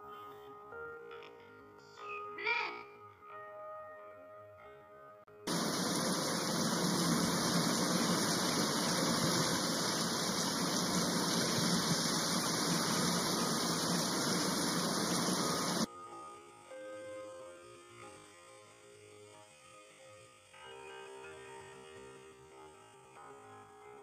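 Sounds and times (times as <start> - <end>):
steady rushing hiss: 5.5 - 23.2.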